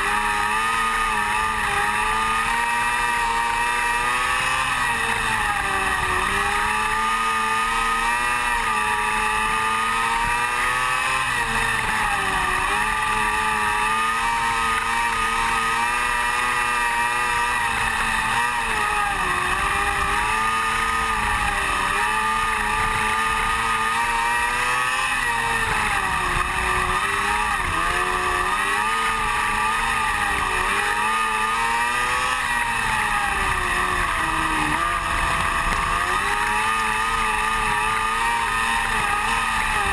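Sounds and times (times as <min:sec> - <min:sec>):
race car engine: 0:00.0 - 0:39.9.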